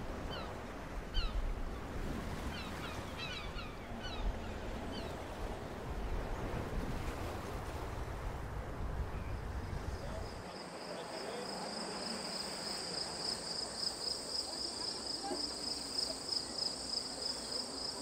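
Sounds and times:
low sea rumble: 0:00.0 - 0:18.0
crickets chirping: 0:09.2 - 0:18.0
faint distant voices: 0:09.8 - 0:18.0.

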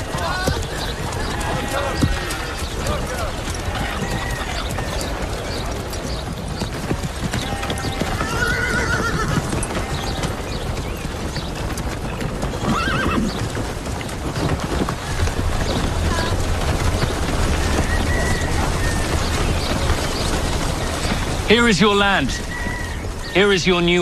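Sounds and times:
horses' hooves clip-clopping: 0:00.0 - 0:24.0
horse whinnying: 0:07.4 - 0:10.4, 0:12.6 - 0:13.5.

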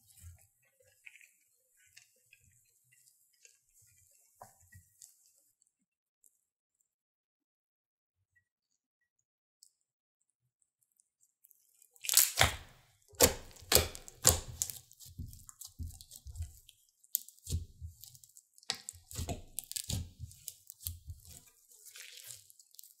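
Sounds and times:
slime crackling and popping: 0:12.0 - 0:23.0.

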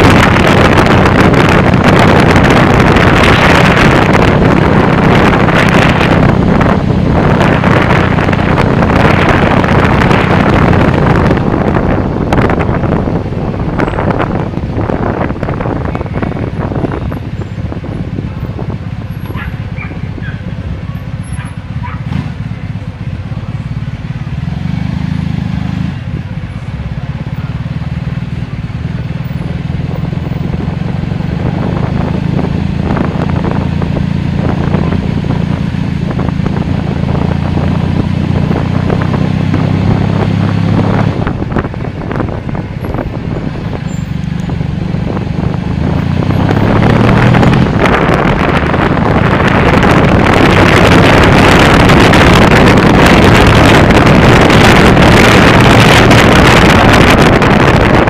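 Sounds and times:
car engine drone: 0:00.0 - 0:58.0
wind and tyre noise: 0:00.0 - 0:58.0.

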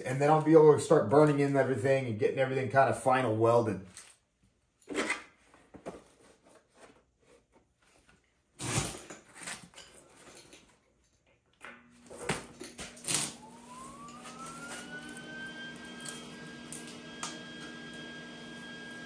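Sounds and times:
electric motor whine: 0:13.0 - 0:19.0.

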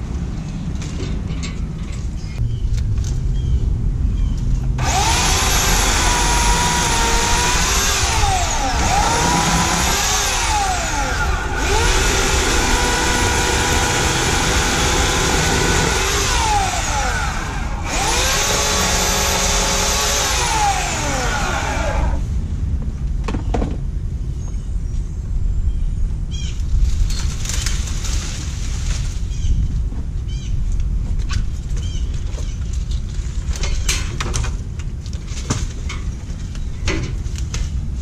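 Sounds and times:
electric chainsaw cutting brush: 0:04.8 - 0:22.3.

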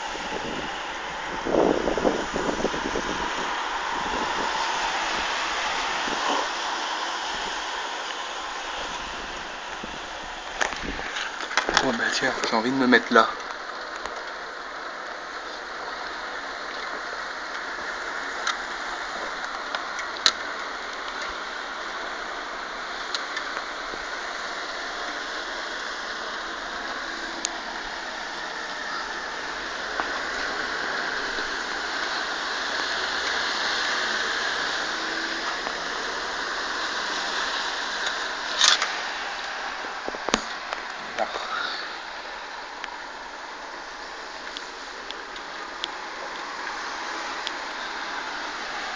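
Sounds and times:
rain hissing: 0:00.0 - 0:48.9.

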